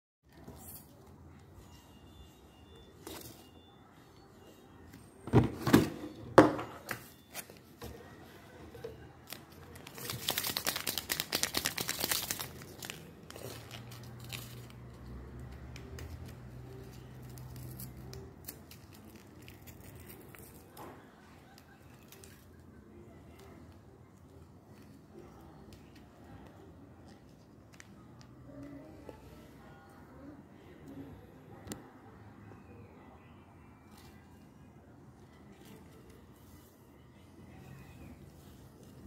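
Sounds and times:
paper packet crinkling and tearing: 9.2s - 15.0s.

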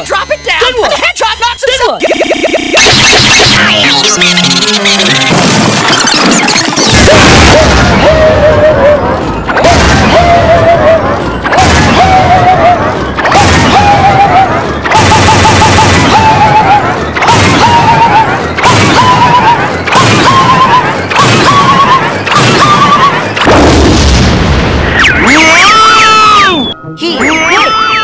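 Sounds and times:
noisy crash: 5.1s - 25.4s.

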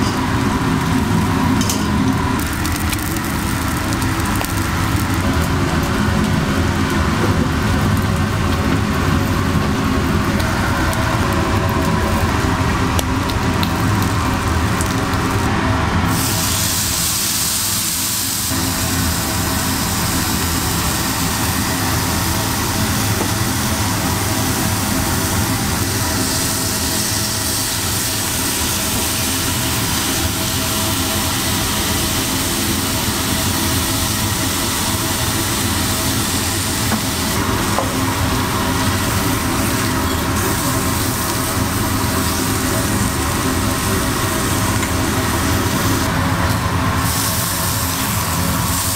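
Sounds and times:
food sizzling on griddle: 0.0s - 48.9s.

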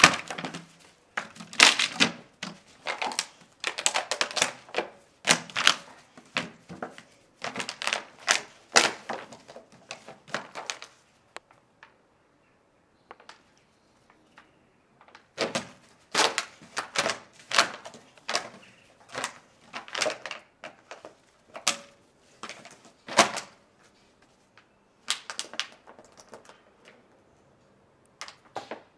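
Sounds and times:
plastic bottle crackling: 0.0s - 11.0s, 15.0s - 23.6s, 25.1s - 27.0s.

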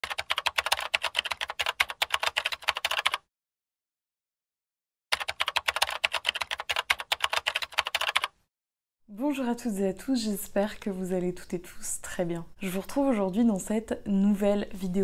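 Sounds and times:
rapid keyboard key clicks: 0.0s - 3.2s, 5.1s - 8.3s.

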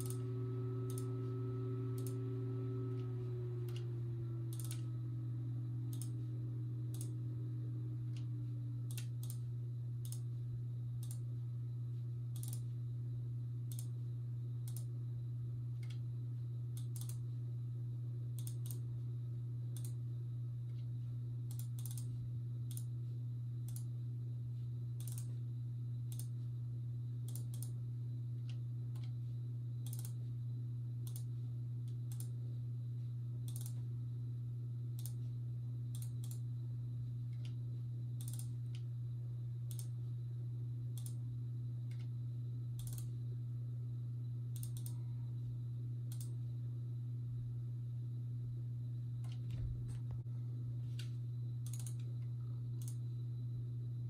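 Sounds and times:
computer mouse clicking: 0.0s - 5.0s, 5.8s - 7.2s, 8.1s - 10.3s, 11.0s - 11.2s, 12.3s - 12.7s, 13.7s - 14.0s, 14.6s - 14.9s, 15.8s - 16.0s, 16.8s - 17.2s, 18.4s - 18.9s, 19.8s - 20.0s, 21.5s - 22.1s, 22.7s - 22.9s, 23.6s - 23.9s, 25.0s - 25.4s, 26.1s - 26.4s, 27.3s - 27.8s, 28.4s - 29.2s, 29.8s - 30.2s, 31.0s - 31.3s, 31.9s - 32.4s, 33.5s - 33.8s, 35.0s - 35.3s, 35.9s - 36.5s, 37.3s - 37.6s, 38.2s - 38.9s, 39.7s - 40.0s, 41.0s - 41.2s, 42.8s - 43.2s, 44.6s - 45.0s, 46.1s - 46.4s, 49.2s - 50.2s, 50.9s - 53.0s
low hum: 0.0s - 54.0s.

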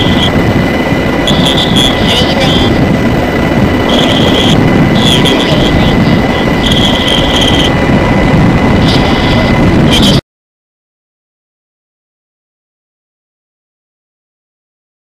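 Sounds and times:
helicopter rotor and engine: 0.0s - 10.2s
thin high whine: 0.0s - 10.2s.

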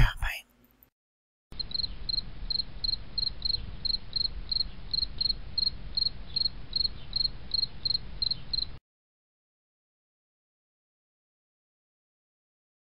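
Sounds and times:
cricket chirping: 1.6s - 8.8s.

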